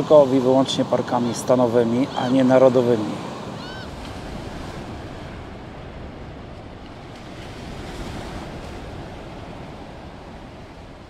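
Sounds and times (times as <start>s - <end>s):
ocean surf washing ashore: 0.0s - 11.0s
wind rumbling on microphone: 3.2s - 11.0s.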